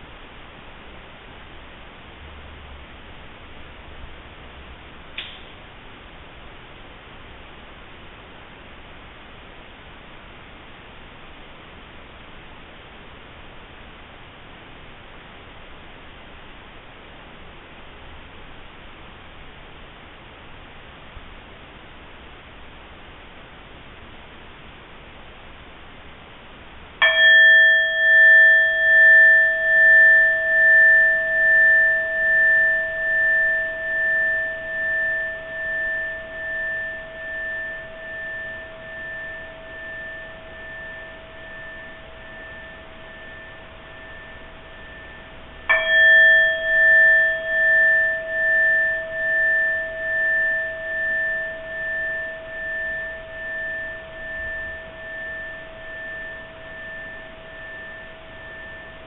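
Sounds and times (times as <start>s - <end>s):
bowl bell ringing: 26.9s - 59.0s.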